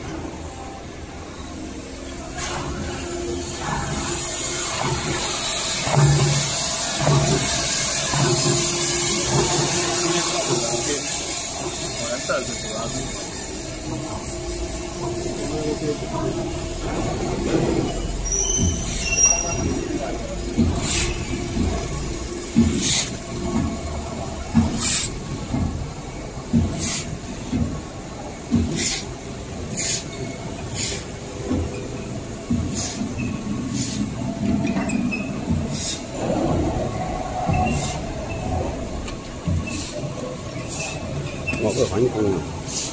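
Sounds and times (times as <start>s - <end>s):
machine hum and rumble: 0.0s - 42.7s
high squeal: 17.8s - 20.1s.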